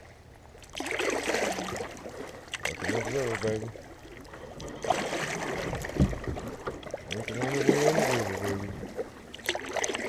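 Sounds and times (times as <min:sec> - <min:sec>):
water lapping and trickling: 0:00.0 - 0:10.0
low thump: 0:05.7 - 0:06.5.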